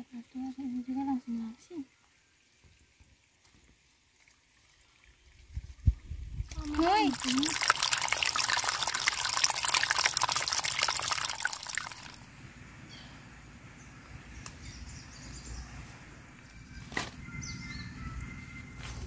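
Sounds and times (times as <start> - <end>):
water trickling over stones: 0.0 - 12.3.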